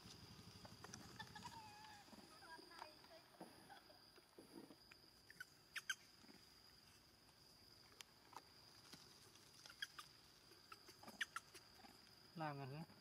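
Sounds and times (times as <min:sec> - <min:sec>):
monkeys squeaking: 0:05.3 - 0:06.0, 0:09.6 - 0:11.8.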